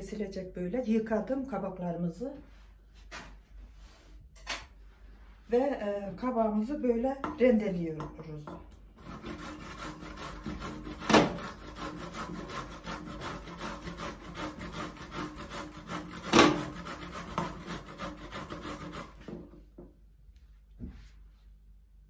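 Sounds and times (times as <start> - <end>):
vegetable rasping on metal grater: 9.0 - 19.2.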